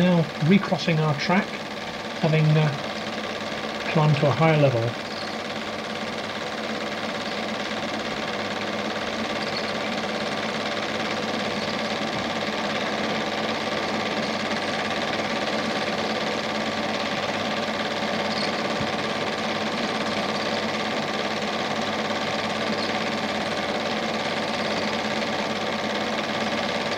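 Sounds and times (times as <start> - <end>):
film projector whirring: 0.0 - 26.9.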